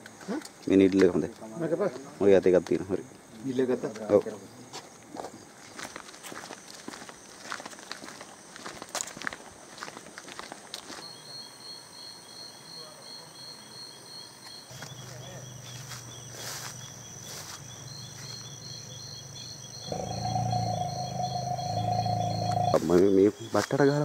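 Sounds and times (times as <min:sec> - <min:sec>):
insects chirping: 0:00.0 - 0:24.0
low steady drone: 0:19.8 - 0:22.9.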